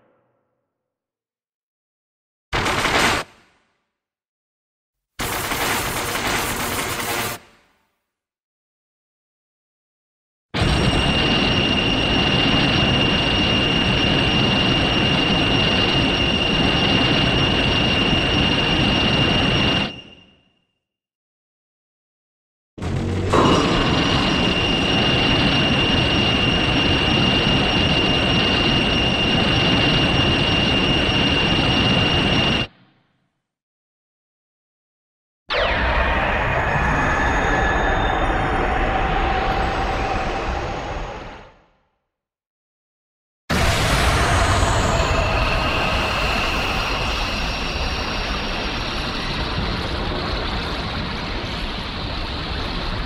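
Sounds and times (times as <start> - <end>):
high-pitched whine: 10.6 - 20.4, 22.8 - 32.7, 35.5 - 41.4, 43.5 - 53.0
monster roar: 22.8 - 24.6.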